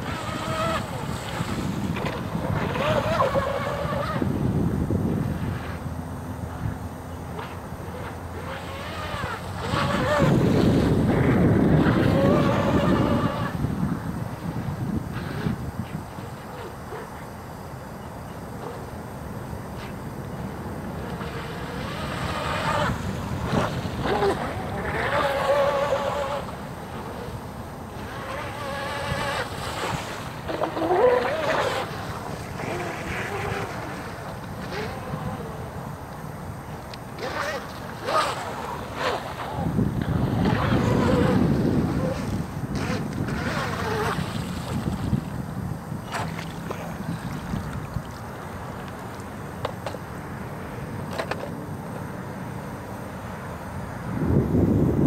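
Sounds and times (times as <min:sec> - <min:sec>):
model boat motor whining: 0:00.0 - 0:55.0
wind: 0:00.0 - 0:55.0
water lapping: 0:19.8 - 0:35.9, 0:36.7 - 0:50.0.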